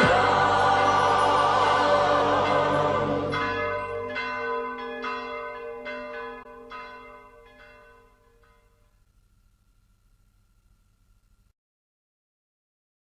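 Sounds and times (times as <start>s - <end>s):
recorded choral music: 0.0s - 7.1s
bells ringing: 0.0s - 9.0s.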